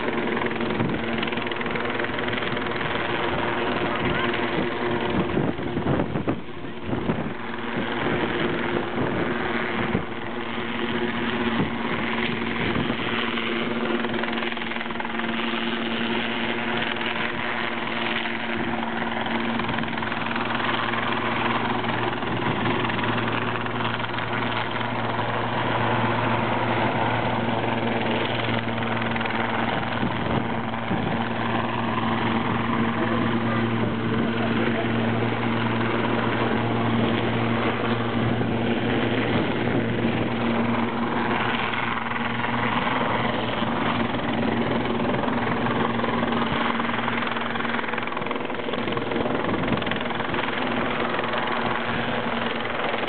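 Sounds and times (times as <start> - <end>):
helicopter hovering: 0.0 - 53.0.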